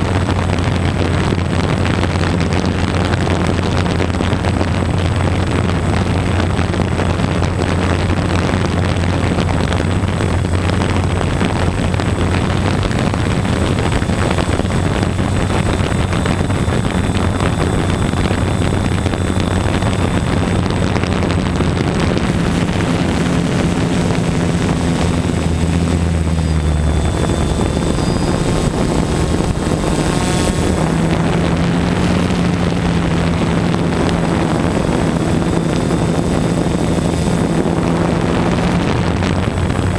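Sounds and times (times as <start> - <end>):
aircraft propeller motor running: 0.0 - 39.9.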